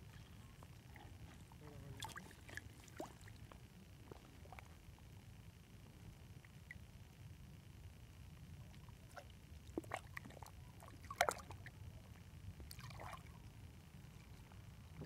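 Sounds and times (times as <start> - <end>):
fish splashing in shallow water: 0.6 - 5.0, 8.7 - 12.0, 12.6 - 13.6.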